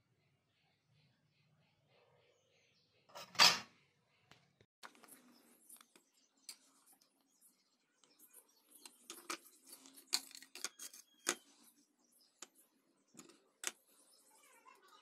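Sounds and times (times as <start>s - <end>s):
battery cells clicking and tapping: 8.0s - 14.3s.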